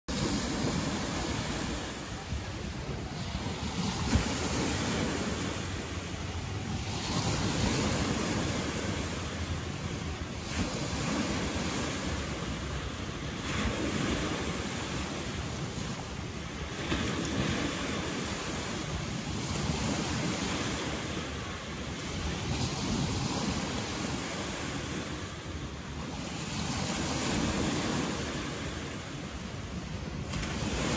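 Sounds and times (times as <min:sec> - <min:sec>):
waves breaking on beach: 0:00.1 - 0:30.9.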